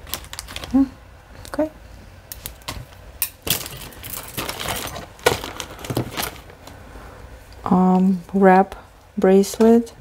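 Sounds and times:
metal jewelry clinking: 3.2s - 5.1s.

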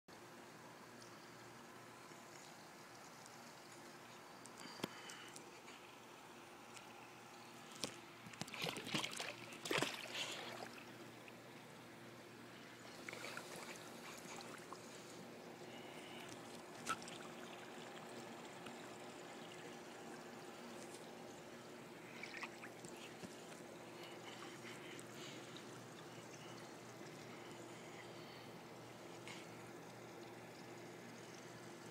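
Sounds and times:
low steady hum: 0.1s - 31.9s
pool water splashing: 6.8s - 31.9s
water lapping: 7.6s - 11.5s, 12.5s - 29.8s.

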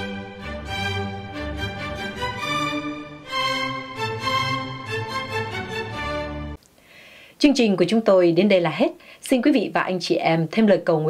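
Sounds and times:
slow instrumental melody: 0.0s - 6.6s.

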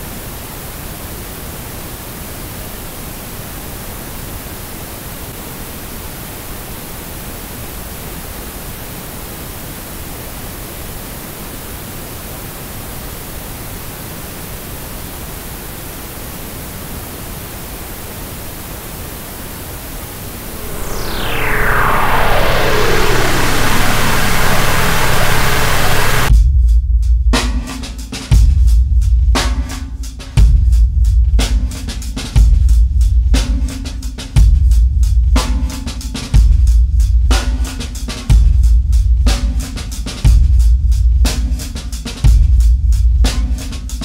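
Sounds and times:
static-like noise: 0.0s - 26.3s
falling pitch sweep: 20.2s - 26.3s.

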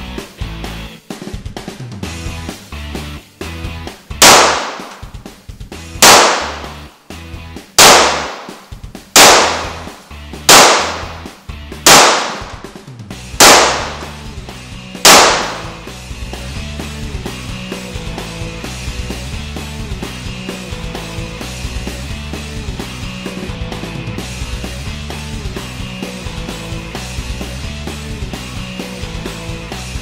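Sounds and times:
background music: 0.0s - 30.0s
handgun shots with ringing echo: 4.2s - 5.2s, 6.0s - 6.9s, 7.8s - 12.8s, 13.4s - 14.2s, 15.0s - 15.8s.

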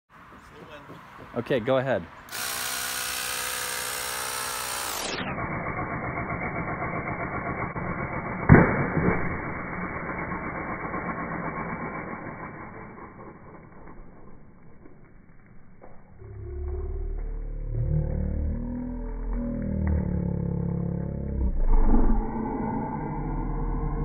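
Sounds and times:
cordless drill running: 2.3s - 8.3s
water rocket launch burst: 2.3s - 14.4s.

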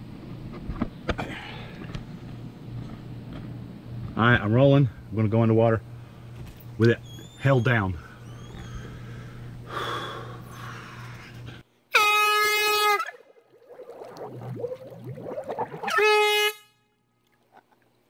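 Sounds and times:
air horn blast underwater: 11.9s - 17.2s
gurgly warbling underwater: 13.1s - 16.0s.

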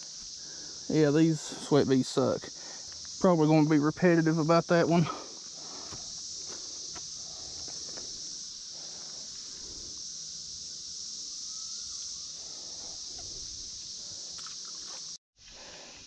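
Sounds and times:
insect chorus buzzing: 0.0s - 16.0s.

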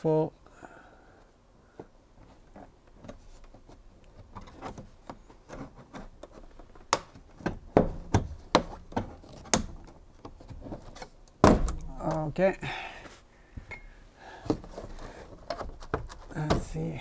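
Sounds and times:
faint plastic rubbing: 1.6s - 7.4s, 14.4s - 17.0s
sharp plastic clicks and knocks: 2.9s - 12.3s, 14.5s - 16.8s.

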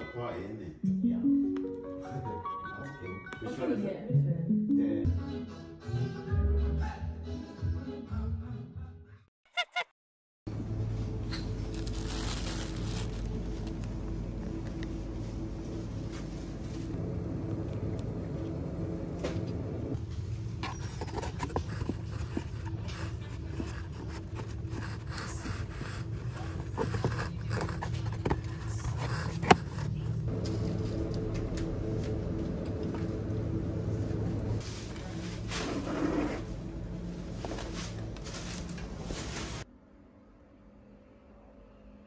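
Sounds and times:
low hum: 10.5s - 35.6s
packaging rustling and clicking: 11.7s - 13.9s.

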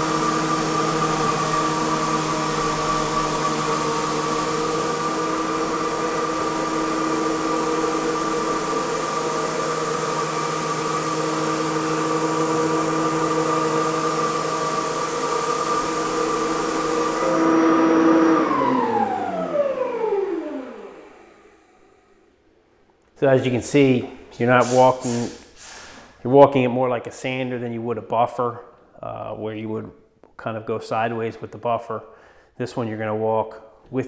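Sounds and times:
loud hiss of sander: 0.0s - 22.2s, 24.5s - 26.2s
floor sander motor hum: 0.0s - 22.4s.

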